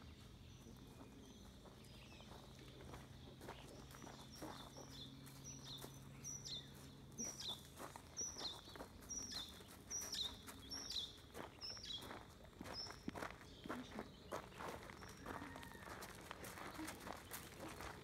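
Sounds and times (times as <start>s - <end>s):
footsteps on gravel: 0.1s - 18.0s.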